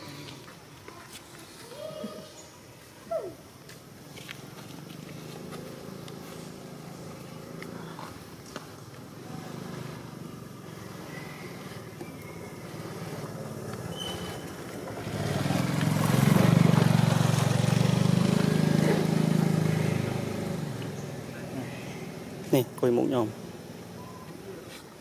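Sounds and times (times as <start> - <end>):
vehicle engine passing: 4.2 - 24.6.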